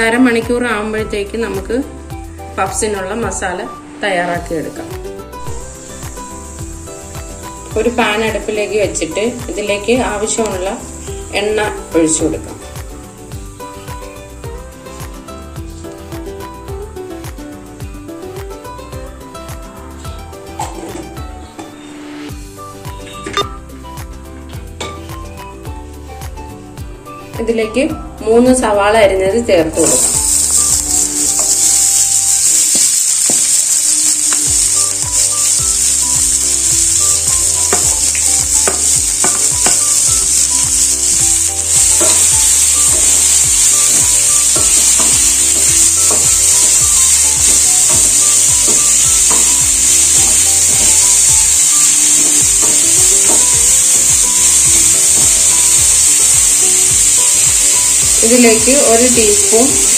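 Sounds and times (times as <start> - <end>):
onions sizzling in hot oil: 4.9 - 20.4, 29.6 - 59.9.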